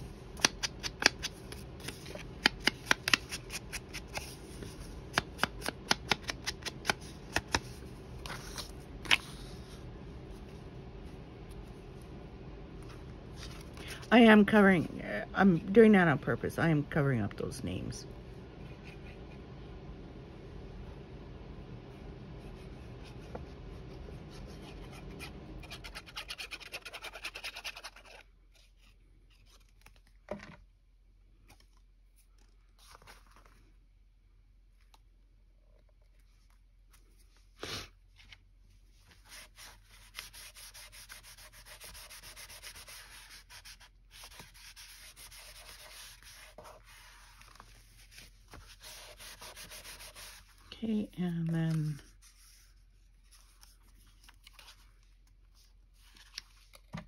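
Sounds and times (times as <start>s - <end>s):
paper rubbed by hand: 39.1s - 50.7s.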